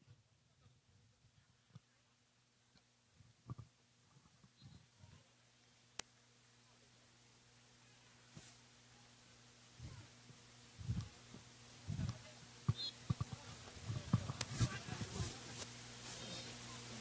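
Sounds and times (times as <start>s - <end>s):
faint electrical hum: 0.0s - 17.0s
soft low thumps: 9.8s - 15.4s.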